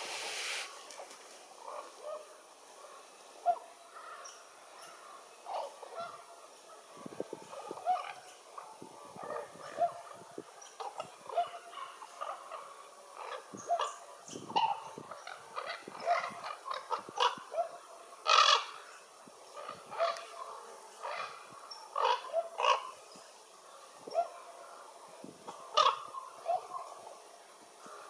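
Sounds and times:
ravens calling: 0:07.5 - 0:23.1, 0:25.5 - 0:27.1.

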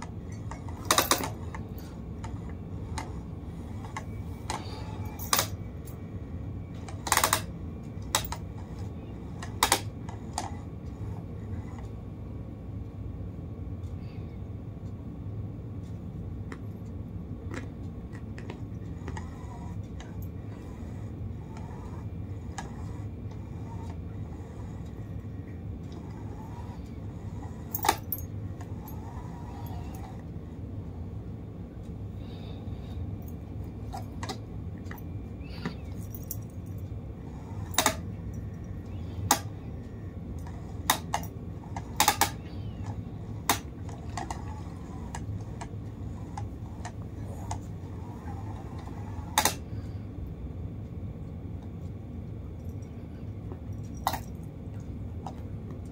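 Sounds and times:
steady low hum: 0:00.0 - 0:55.9
cat toy clicks and rattles: 0:06.8 - 0:10.6, 0:37.6 - 0:38.6, 0:40.3 - 0:49.6, 0:53.8 - 0:54.4.

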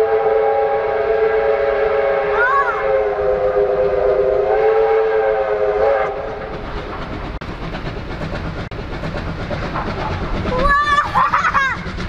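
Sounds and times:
steam locomotive whistle: 0:00.0 - 0:06.4
train rumbling and clattering: 0:00.0 - 0:12.0.

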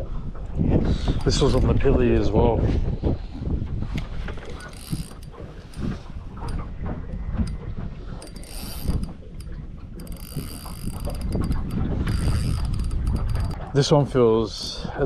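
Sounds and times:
low wind rumble: 0:00.0 - 0:15.0
fishing reel gears ticking: 0:04.4 - 0:06.6, 0:08.2 - 0:13.6.

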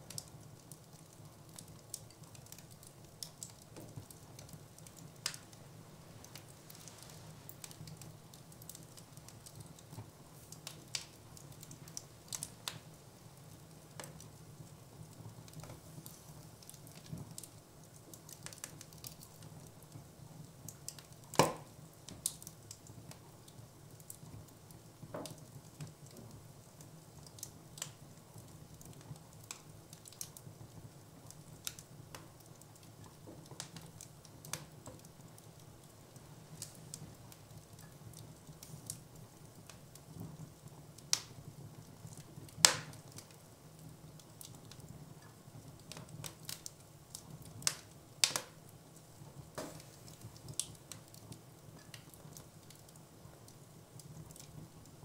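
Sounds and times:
wood fire crackling and popping: 0:00.0 - 0:55.0.

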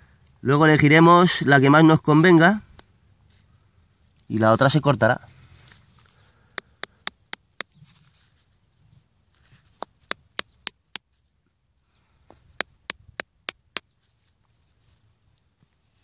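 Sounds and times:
block tapping on wood: 0:06.6 - 0:07.8.

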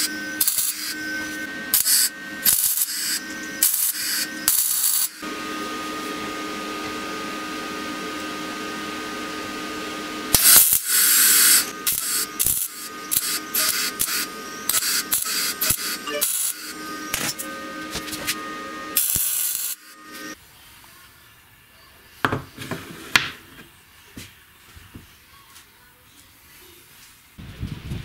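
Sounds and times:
arc welding hiss and crackle: 0:00.0 - 0:05.2, 0:10.3 - 0:20.4
steady hum: 0:00.0 - 0:20.4.

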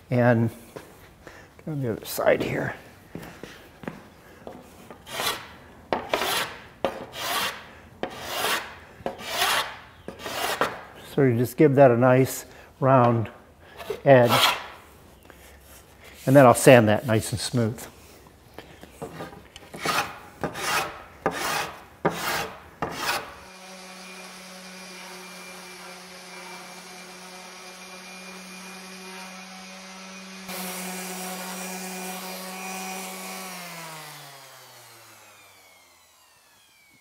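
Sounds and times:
hand plane shaving wood: 0:06.1 - 0:06.5, 0:07.1 - 0:10.6, 0:19.2 - 0:23.3
orbital sander running: 0:23.5 - 0:37.0.

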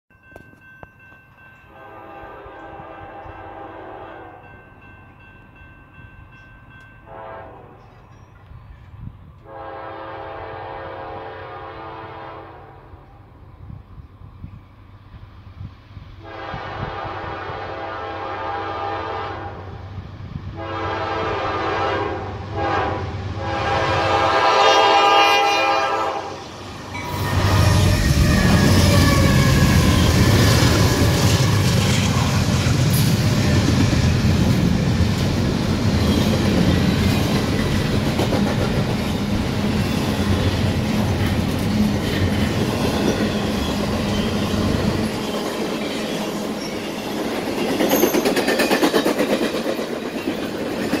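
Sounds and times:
diesel locomotives passing: 0:00.2 - 0:51.0
train air horn blasts: 0:01.7 - 0:04.5, 0:07.0 - 0:07.9, 0:09.4 - 0:13.0, 0:16.2 - 0:19.8, 0:20.5 - 0:31.6
train wheel clatter and rumble: 0:27.3 - 0:51.0.

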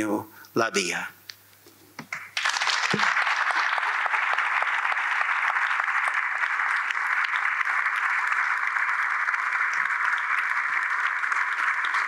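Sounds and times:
audience applause: 0:02.4 - 0:12.0.

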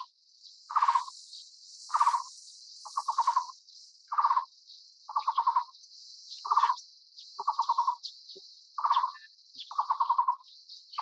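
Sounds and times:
high-pitched insect buzz: 0:00.0 - 0:06.8
bird trilling call: 0:00.7 - 0:01.1, 0:03.0 - 0:03.5, 0:04.1 - 0:04.5, 0:05.1 - 0:05.7, 0:06.4 - 0:06.8, 0:07.4 - 0:08.0, 0:08.8 - 0:10.4.

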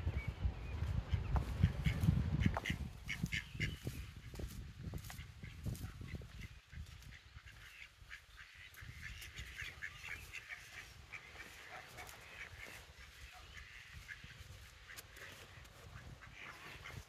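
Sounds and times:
ducks quacking: 0:00.9 - 0:17.0.

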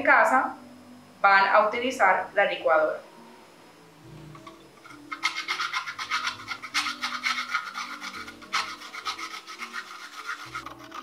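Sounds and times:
coconut scraping on metal grater: 0:04.4 - 0:11.0.

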